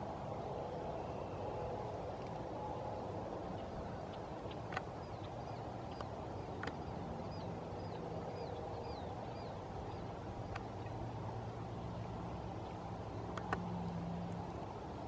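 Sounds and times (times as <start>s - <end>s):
bird chirping: 3.6s - 11.0s.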